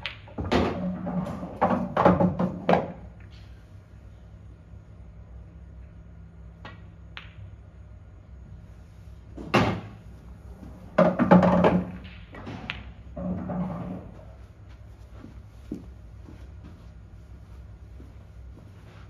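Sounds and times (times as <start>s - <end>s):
pool balls clattering: 0.0s - 3.3s, 9.4s - 14.4s.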